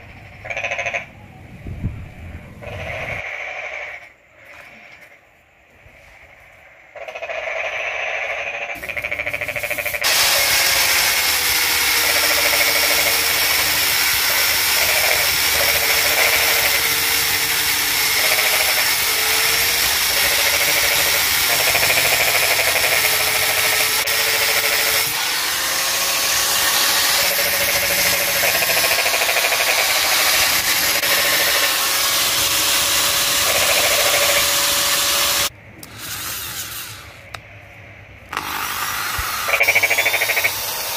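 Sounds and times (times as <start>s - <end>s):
angle grinder running under load: 9.9s - 37.1s, 38.3s - 40.9s.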